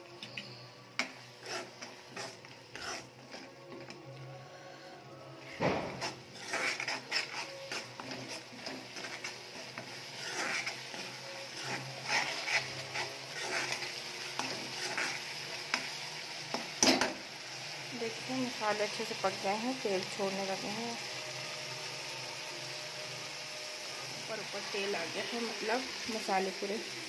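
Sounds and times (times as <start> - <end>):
oil sizzling: 0.0 - 27.0
spoon scraping metal pan: 0.3 - 4.0, 5.8 - 17.0.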